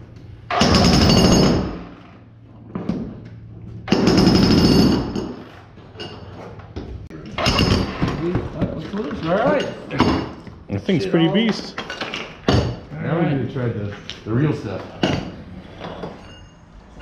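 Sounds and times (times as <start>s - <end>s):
jackhammer hammering concrete: 0.5s - 1.9s, 3.9s - 5.4s.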